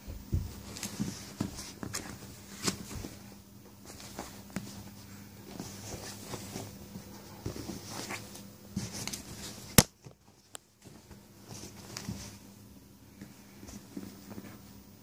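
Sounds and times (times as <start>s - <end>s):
rustling of bedding: 0.0s - 15.0s.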